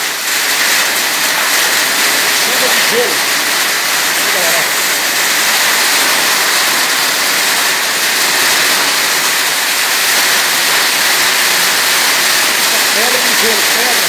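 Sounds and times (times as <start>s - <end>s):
heavy rain pouring: 0.0s - 14.0s.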